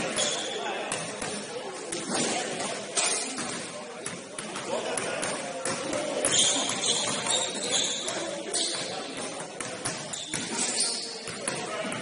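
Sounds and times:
basketball bouncing on court: 0:00.0 - 0:02.7, 0:03.4 - 0:10.6, 0:11.2 - 0:12.0.

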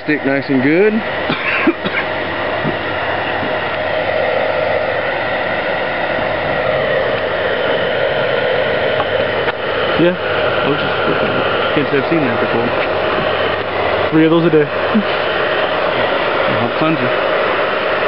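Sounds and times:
heat gun blowing: 0:00.0 - 0:18.0.

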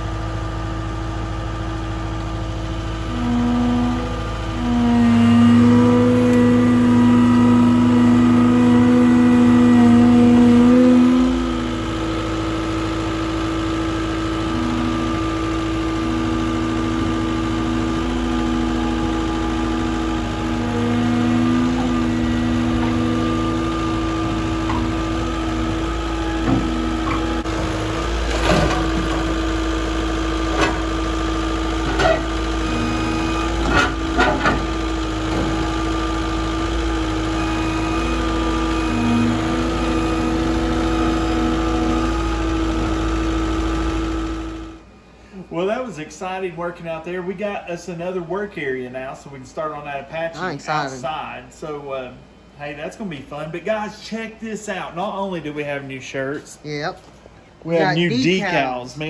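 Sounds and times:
heavy equipment engine running: 0:00.0 - 0:45.8, 0:50.4 - 0:51.3.

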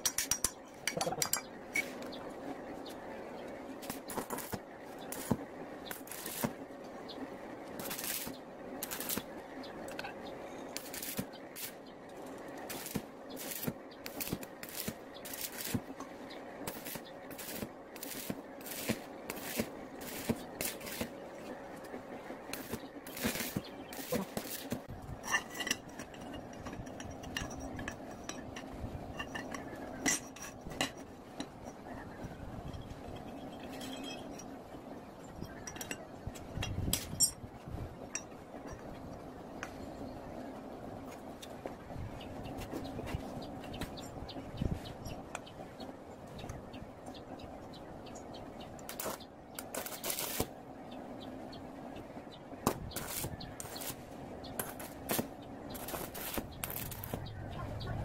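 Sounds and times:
metal tubes clinking and scraping: 0:00.0 - 0:02.0, 0:22.6 - 0:31.8, 0:32.6 - 0:34.5, 0:35.4 - 0:37.5
welding arc crackling: 0:03.8 - 0:06.6, 0:07.6 - 0:09.4, 0:10.7 - 0:16.0, 0:16.6 - 0:21.9, 0:22.5 - 0:24.9, 0:48.8 - 0:50.6, 0:52.9 - 0:57.3.

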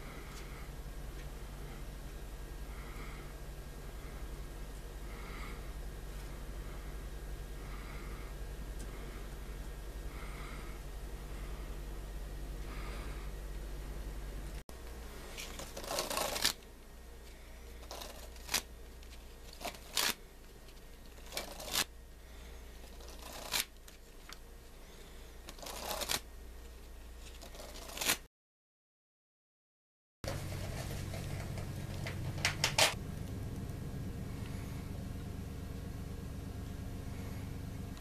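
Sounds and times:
low hum: 0:00.0 - 0:28.0, 0:30.3 - 0:38.0
playing cards shuffling: 0:15.3 - 0:16.6, 0:17.8 - 0:21.9, 0:23.0 - 0:24.4, 0:25.5 - 0:26.2, 0:27.2 - 0:28.2.

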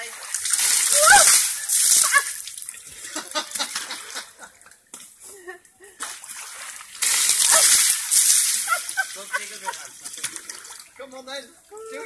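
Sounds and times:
water splashing: 0:00.0 - 0:04.3, 0:06.0 - 0:11.2
water sloshing and dripping: 0:00.0 - 0:05.2, 0:06.0 - 0:11.2
gush of water spray: 0:07.0 - 0:09.8.

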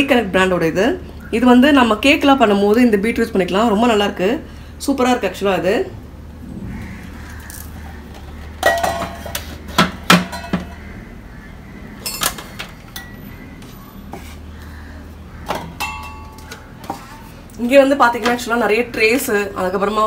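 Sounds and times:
kitchenware knocking and clinking: 0:08.6 - 0:10.8, 0:15.5 - 0:17.0.

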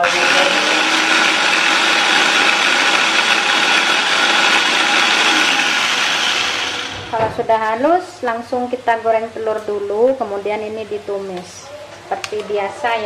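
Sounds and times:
electric blender whirring: 0:00.0 - 0:07.3.

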